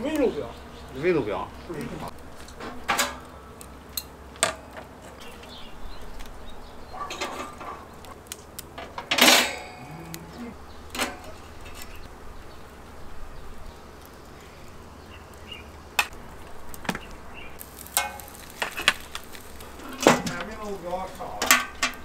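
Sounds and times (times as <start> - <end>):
metal tongs clinking on grill: 17.7 - 19.1, 21.4 - 22.0.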